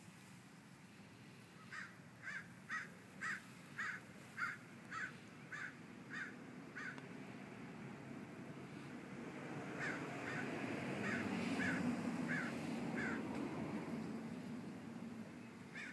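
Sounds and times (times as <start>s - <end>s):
bird calling: 1.6s - 7.0s, 9.8s - 13.3s, 15.4s - 15.9s.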